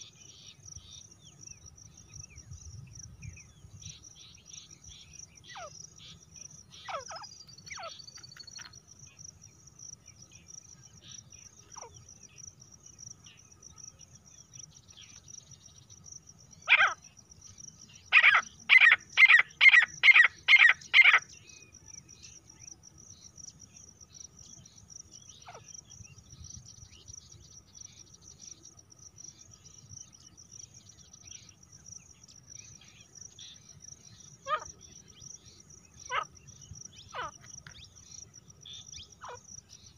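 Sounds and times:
cricket trill: 0:00.1 - 0:39.9
francolin calling: 0:03.3 - 0:08.8, 0:15.9 - 0:22.7, 0:31.1 - 0:39.9.

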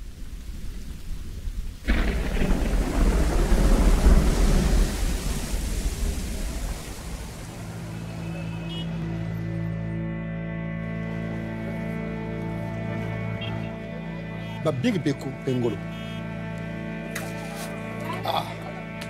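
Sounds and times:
rain falling: 0:00.0 - 0:09.4
thunder clap rumbling: 0:00.1 - 0:08.7
low musical drone: 0:07.1 - 0:19.0.

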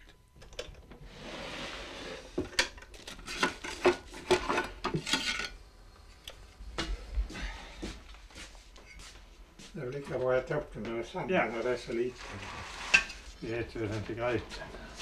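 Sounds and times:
pot and utensils scraping: 0:01.1 - 0:05.6, 0:11.9 - 0:13.4.

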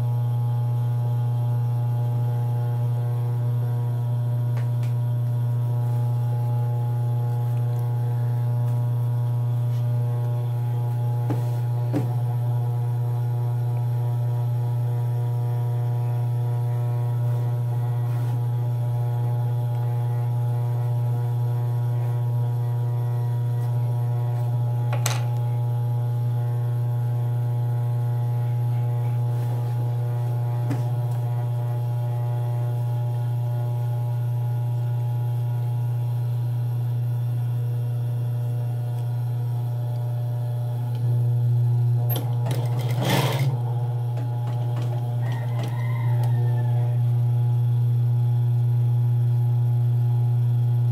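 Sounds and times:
sewing machine motor humming: 0:00.0 - 0:48.4
sewing machine stitching: 0:42.0 - 0:45.8.

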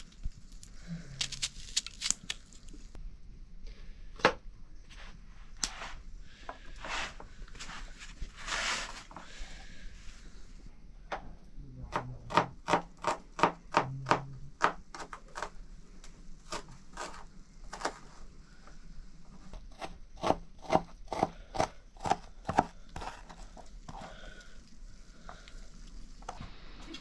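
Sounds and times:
knife chopping food: 0:19.7 - 0:24.1.

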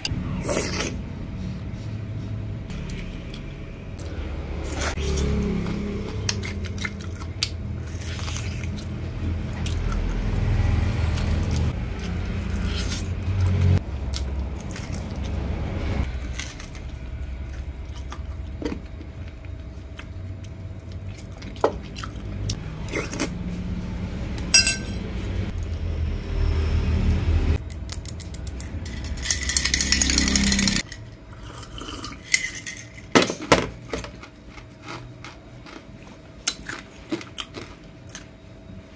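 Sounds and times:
chewing and gnawing on bone: 0:04.7 - 0:23.4, 0:34.0 - 0:38.4
spoon clinking glass dishes: 0:24.6 - 0:25.0.

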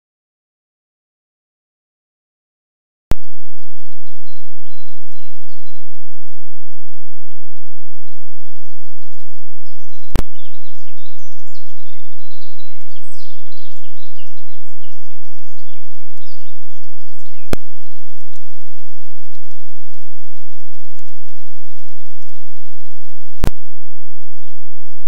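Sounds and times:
microphone hiss: 0:03.2 - 0:25.0
birds chirping and trilling: 0:03.6 - 0:05.8, 0:08.1 - 0:17.9
sharp clicks: 0:23.4 - 0:23.6.

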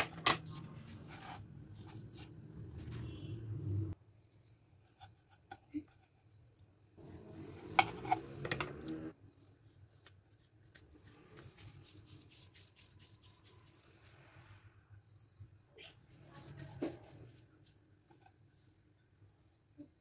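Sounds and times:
hands rubbing and patting dough: 0:09.7 - 0:14.2, 0:16.1 - 0:18.4.

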